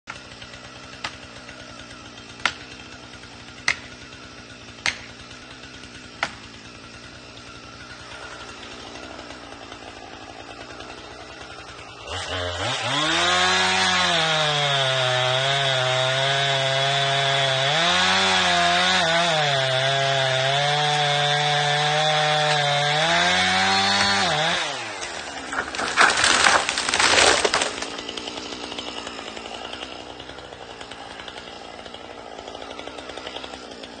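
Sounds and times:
chainsaw running at high revs: 0.0s - 34.0s
branches snapping: 0.1s - 34.0s
tree cracking and crashing down: 8.0s - 33.9s.

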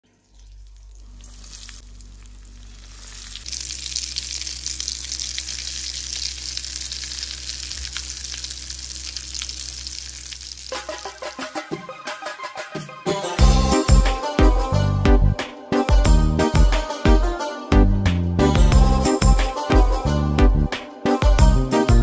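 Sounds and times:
food sizzling in hot oil: 0.1s - 11.3s.

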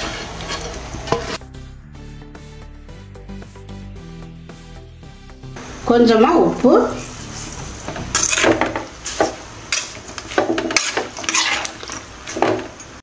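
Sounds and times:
metal spoon scraping a pan: 0.0s - 1.4s, 7.0s - 12.8s.

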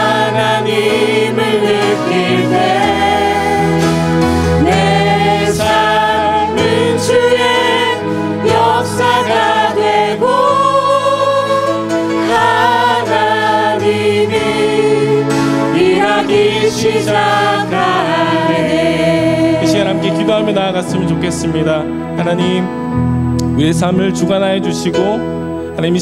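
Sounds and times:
group singing praise song: 0.0s - 20.6s.

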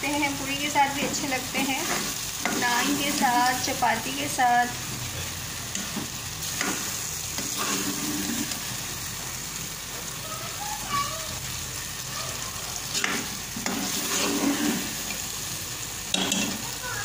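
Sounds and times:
curry sizzling in a pot: 0.0s - 17.0s
metal ladle scraping a pot: 7.4s - 8.6s, 12.9s - 15.1s.

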